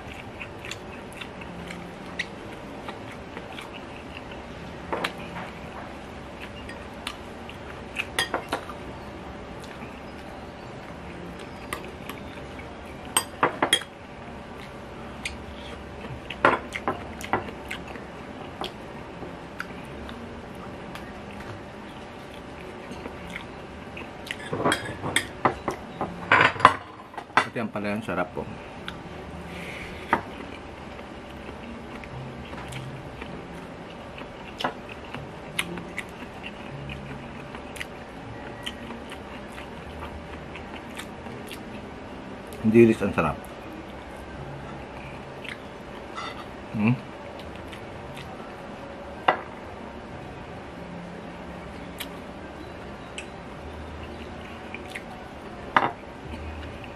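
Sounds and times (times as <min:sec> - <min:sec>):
person chewing food: 0:00.0 - 0:08.8, 0:09.5 - 0:18.9, 0:19.5 - 0:25.8, 0:28.8 - 0:42.6, 0:43.4 - 0:46.6, 0:47.3 - 0:48.5, 0:53.2 - 0:55.2
cutlery clinking on ceramic dishes: 0:46.2 - 0:46.5.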